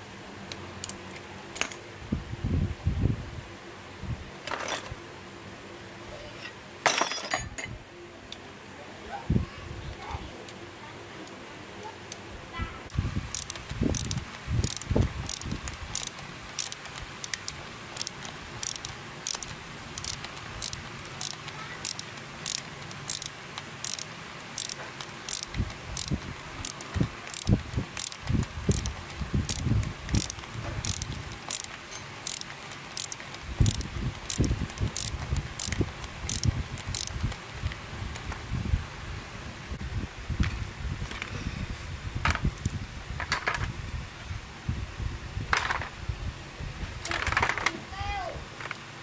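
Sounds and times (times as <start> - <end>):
high-pitched ticking: 12.9 - 37.4.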